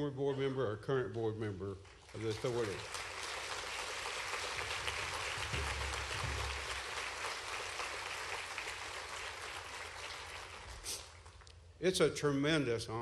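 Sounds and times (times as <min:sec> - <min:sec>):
audience applauding: 0:01.8 - 0:11.5.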